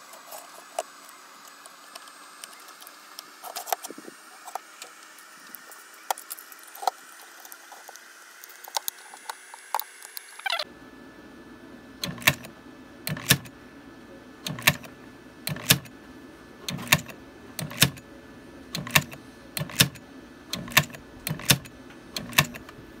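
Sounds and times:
faint steady hum: 0.0s - 23.0s
switch mechanism clacking: 12.0s - 12.5s, 13.1s - 13.5s, 14.5s - 14.9s, 15.5s - 15.9s, 16.7s - 18.0s, 18.7s - 22.8s.

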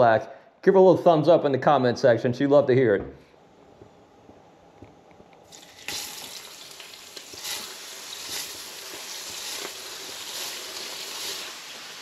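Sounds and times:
fish fillets sizzling in fat: 5.5s - 12.0s.

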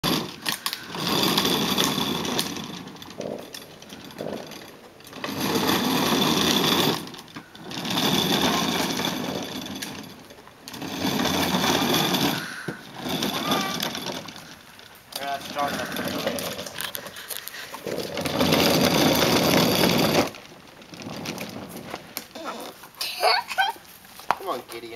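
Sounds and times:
plastic wheels rattling on asphalt: 0.0s - 24.9s.

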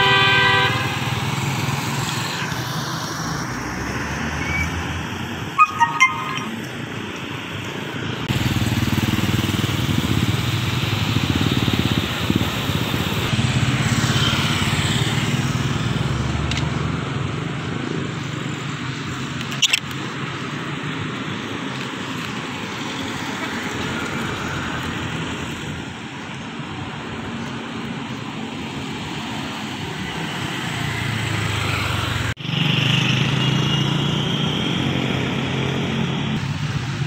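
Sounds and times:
motorcycle engine running: 8.3s - 16.0s.

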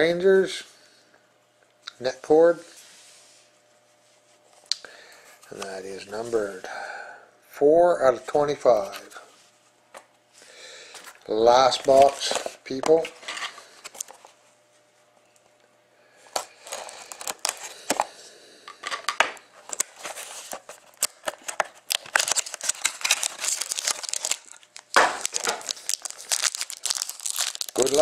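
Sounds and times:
foil wrappers crinkling and tearing: 11.5s - 12.6s, 16.4s - 18.1s, 19.6s - 28.0s.

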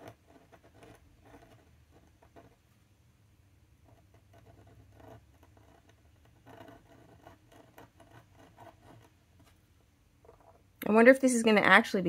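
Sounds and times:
pen nib scratching on card: 0.0s - 2.6s, 3.8s - 9.5s.

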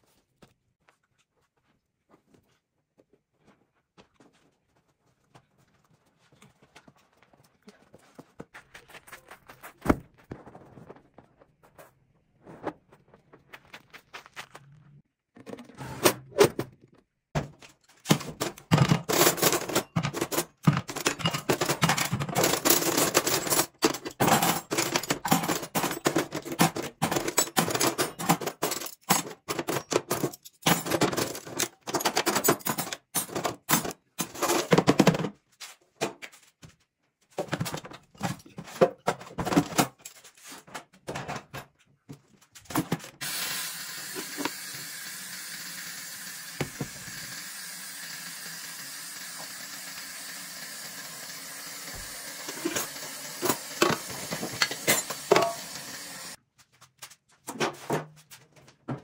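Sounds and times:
metal cutlery clattering: 17.7s - 35.3s, 37.4s - 41.7s, 52.4s - 55.8s
tap water spraying onto utensils: 43.2s - 56.4s.

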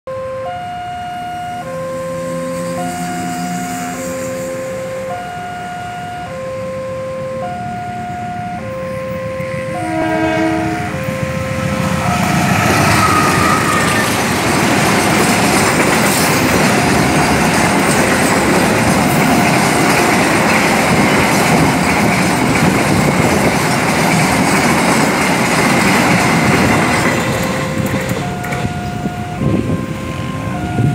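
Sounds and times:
level-crossing alarm chime tones: 0.1s - 9.6s
train horn: 0.1s - 14.3s
freight wagons rumbling over rails: 8.0s - 30.9s.

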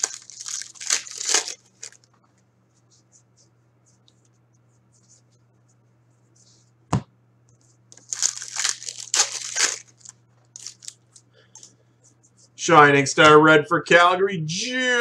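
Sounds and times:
foil wrapper tearing and crinkling: 0.0s - 2.1s, 8.0s - 11.0s.

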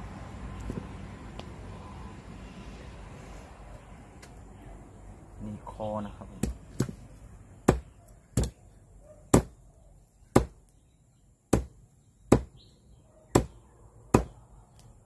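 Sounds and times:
knife chopping on wooden block: 6.4s - 7.0s, 7.6s - 8.6s, 9.3s - 9.6s, 10.3s - 10.6s, 11.5s - 12.6s, 13.3s - 14.4s.

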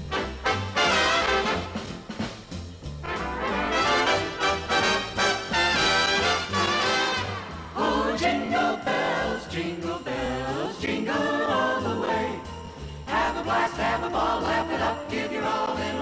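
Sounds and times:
band playing: 0.0s - 7.7s
bass beat: 0.0s - 8.2s
sleigh bells jingling: 0.1s - 16.0s
choir-like melody: 3.4s - 16.0s.

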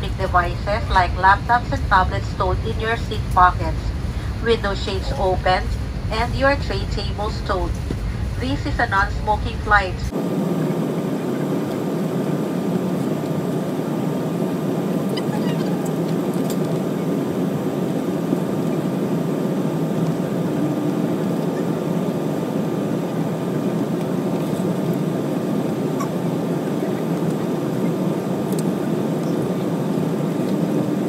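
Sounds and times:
jet engines and airflow rushing: 0.0s - 31.0s
thin steady whine: 0.0s - 31.0s.

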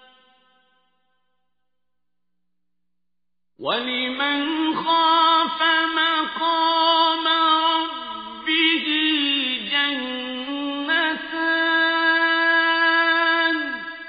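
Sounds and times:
person chanting melodically: 3.6s - 14.0s.

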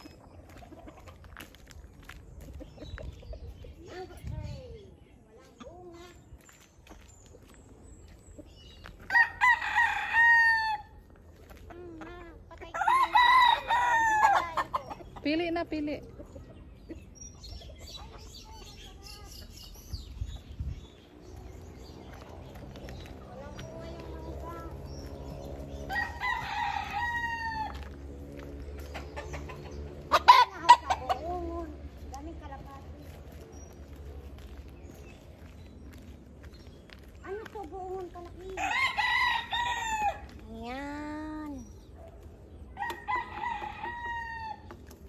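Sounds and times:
chicken clucking: 0.0s - 4.1s, 14.3s - 15.3s, 28.8s - 31.6s
roosters crowing: 9.0s - 11.1s, 12.6s - 15.1s, 24.9s - 28.1s, 38.6s - 40.4s, 42.7s - 44.9s.

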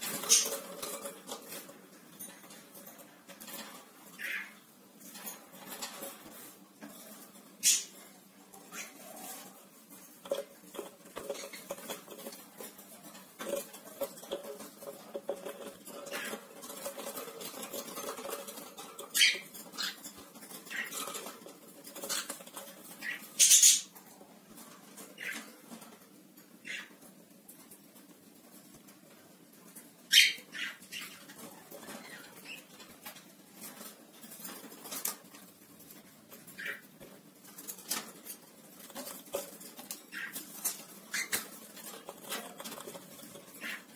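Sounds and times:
bird claws scratching on perches: 0.0s - 8.0s, 8.7s - 24.0s, 36.6s - 43.9s.

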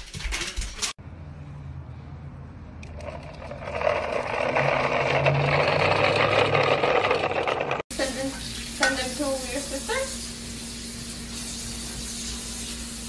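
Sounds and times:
plastic wheels rattling on asphalt: 3.0s - 7.9s.

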